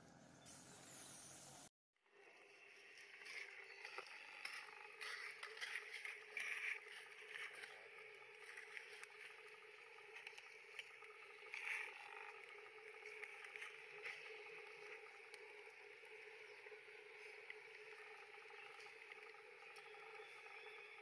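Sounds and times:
low hum: 0:01.5 - 0:21.0.

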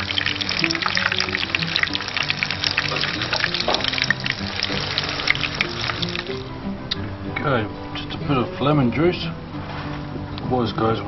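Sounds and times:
fish sizzling in hot oil: 0:00.0 - 0:06.5
background music: 0:00.0 - 0:11.0.

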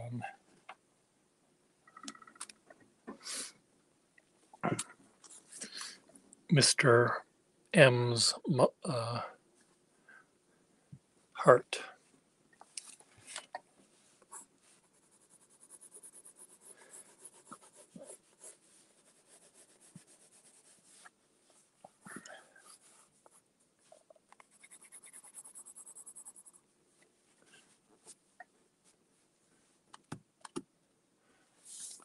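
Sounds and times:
pencil scratching on paper: 0:14.3 - 0:21.0, 0:24.4 - 0:26.6.

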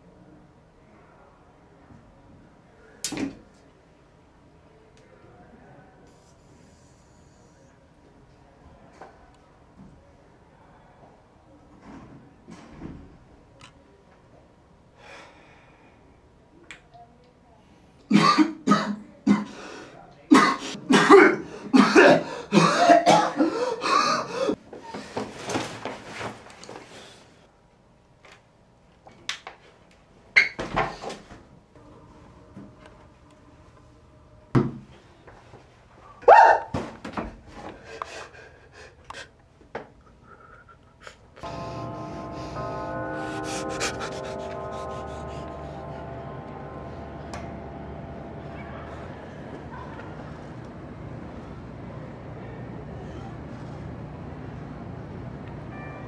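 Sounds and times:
faint breaths: 0:14.9 - 0:16.4
man coughing: 0:18.1 - 0:19.6, 0:20.3 - 0:24.6
man sobbing: 0:20.9 - 0:24.6.

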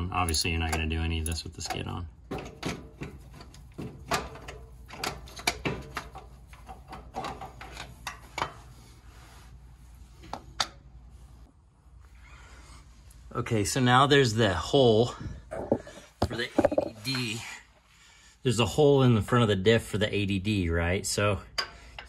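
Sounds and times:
metallic clicks and knocks: 0:00.2 - 0:08.6, 0:15.6 - 0:16.9.

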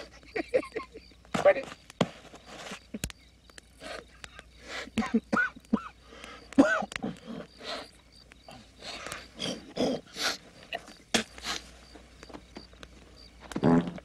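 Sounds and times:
man laughing and hooting: 0:00.0 - 0:01.2.

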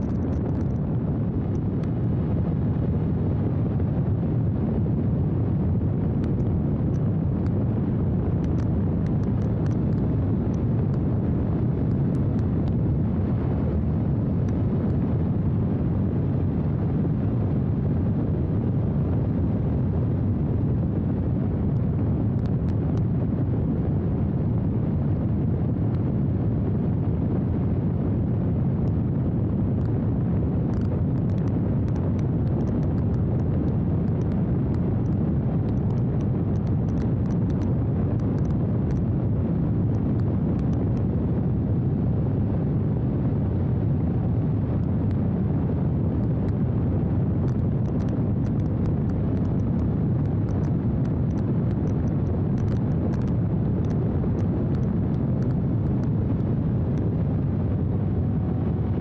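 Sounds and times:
wind buffeting microphone: 0:00.0 - 0:59.0
faint crackles: 0:06.0 - 0:15.8, 0:28.6 - 0:42.1, 0:43.9 - 0:59.0.

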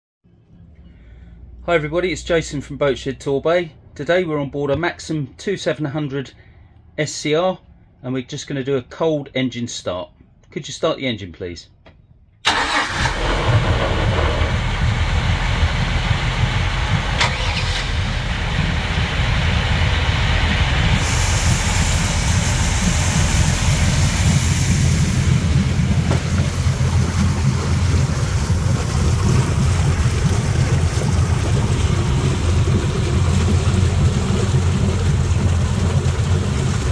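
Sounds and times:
boat engine starting and idling: 0:12.4 - 0:36.9.

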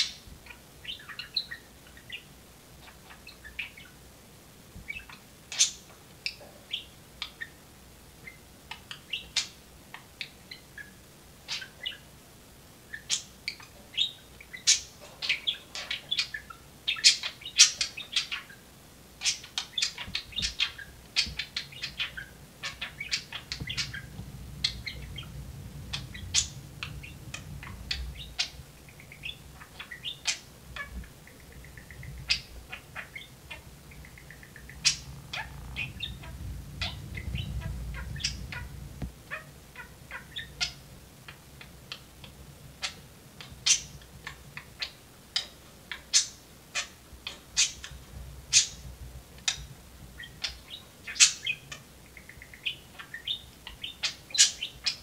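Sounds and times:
budgerigars chattering: 0:19.2 - 0:40.8, 0:41.9 - 0:48.8, 0:49.4 - 0:55.0
faint low rumble: 0:19.8 - 0:45.0, 0:46.8 - 0:54.2.

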